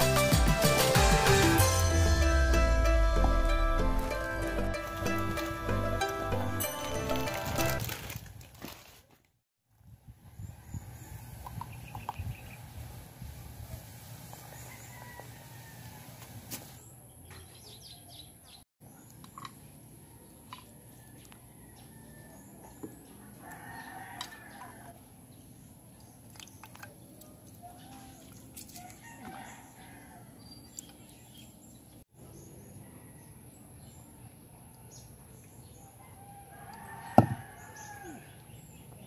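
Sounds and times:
rooster crowing: 14.5s - 16.2s, 20.9s - 25.0s, 28.8s - 30.4s, 36.0s - 38.4s.

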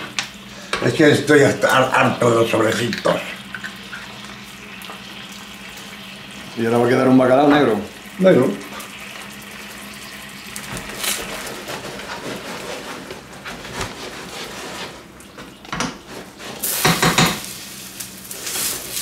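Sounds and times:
fish sizzling in a frying pan: 0.0s - 11.8s, 16.6s - 19.0s
spoon scraping a pan: 16.0s - 17.6s.

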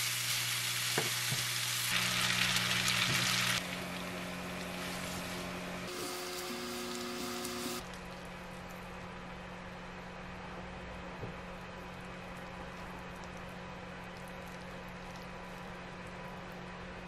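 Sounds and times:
food sizzling in a frying pan: 0.0s - 7.8s.

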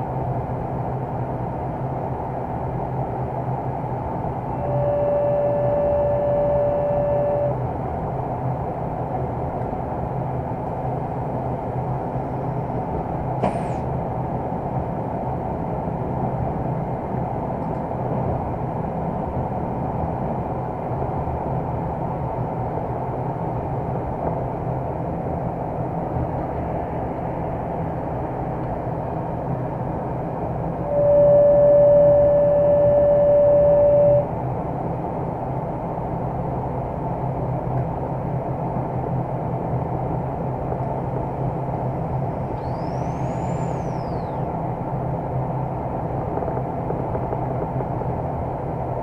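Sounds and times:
locomotive engine rumble: 22.7s - 49.0s
wheels on track: 40.0s - 49.0s.

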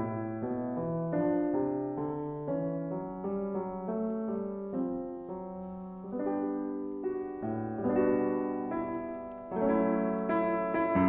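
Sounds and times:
solo piano chords: 0.0s - 11.0s.

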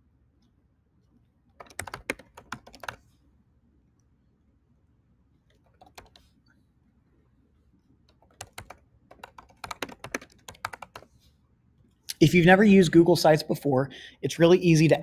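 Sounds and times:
typing on computer keyboard: 1.6s - 3.0s, 5.5s - 6.3s, 8.1s - 11.1s.

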